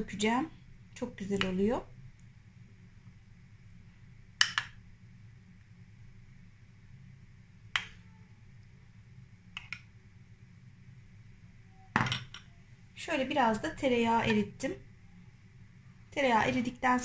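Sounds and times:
faint low hum: 0.0s - 17.0s.

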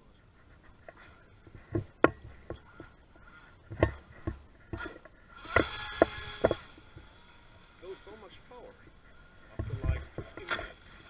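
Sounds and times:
sharp irregular knocks: 1.4s - 7.1s, 9.5s - 10.7s.

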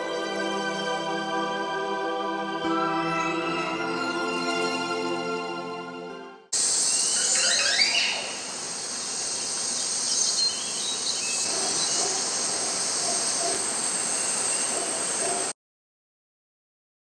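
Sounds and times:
forest hiss: 6.6s - 15.5s.

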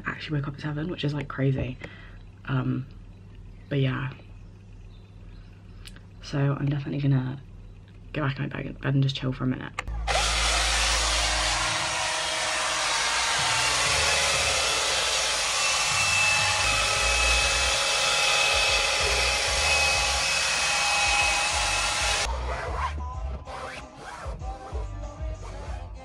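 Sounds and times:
small vacuum cleaner motor whining: 10.0s - 22.3s.

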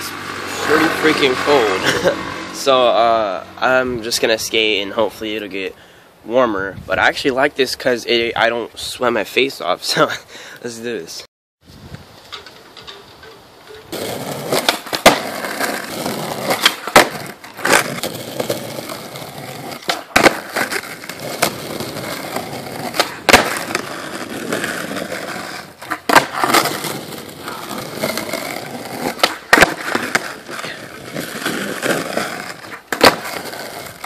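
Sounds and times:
skateboard wheels rolling on concrete: 0.0s - 34.0s
skateboard clacking on concrete: 12.3s - 34.0s.

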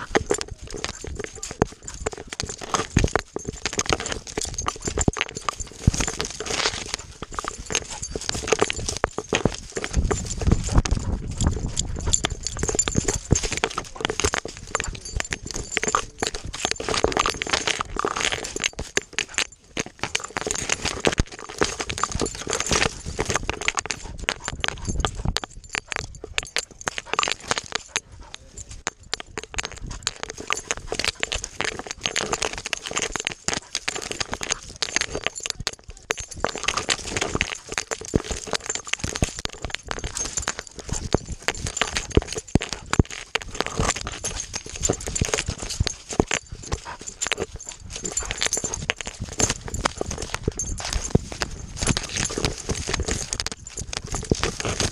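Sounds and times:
dry stalks scraping camera: 0.0s - 54.9s.

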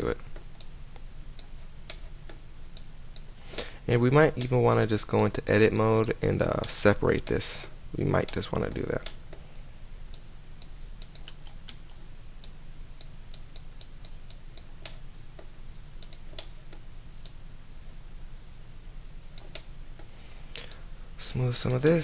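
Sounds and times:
steady low hum: 0.0s - 22.0s
mouse buttons clicking: 10.1s - 12.0s.

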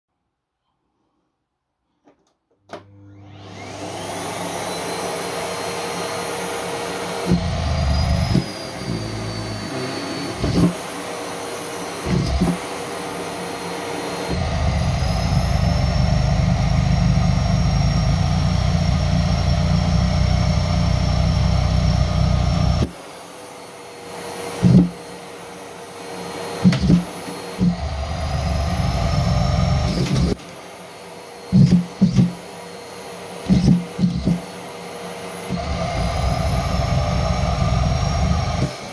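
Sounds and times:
vacuum cleaner motor whine: 2.7s - 38.9s.

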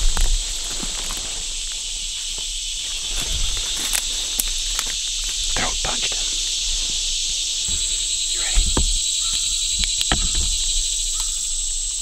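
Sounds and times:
footsteps crunching through leaves: 0.0s - 5.5s
insects chorus: 0.0s - 12.0s.

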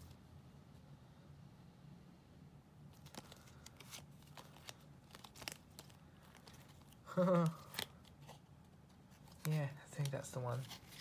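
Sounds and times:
cards being shuffled: 2.9s - 11.0s.

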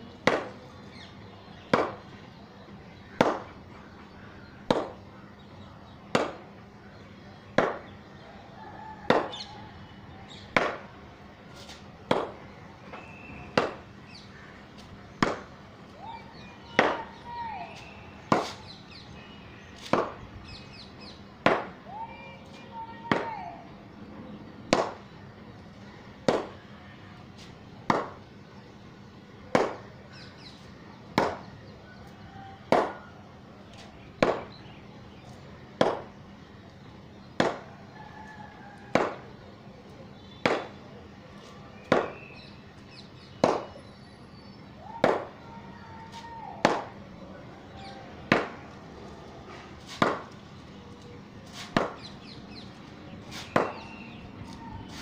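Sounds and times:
cricket bat striking ball: 0.2s - 0.6s, 1.7s - 2.0s, 3.2s - 3.5s, 4.7s - 5.0s, 6.1s - 6.4s, 7.6s - 7.9s, 9.1s - 9.4s, 10.5s - 10.9s, 12.1s - 13.9s, 15.2s - 15.5s, 16.8s - 17.2s, 18.2s - 18.8s, 19.9s - 20.2s, 21.4s - 21.8s, 23.1s - 23.3s, 24.7s - 25.1s, 26.2s - 26.6s, 27.9s - 28.2s, 29.5s - 29.8s, 31.2s - 31.5s, 32.7s - 33.0s, 34.2s - 34.6s, 35.8s - 36.1s, 37.4s - 37.7s, 38.9s - 39.3s, 40.4s - 40.8s, 41.9s - 42.4s, 43.4s - 43.8s, 45.0s - 45.4s, 46.6s - 47.0s, 48.3s - 48.6s, 50.0s - 50.3s, 51.7s - 52.2s, 53.4s - 54.0s.

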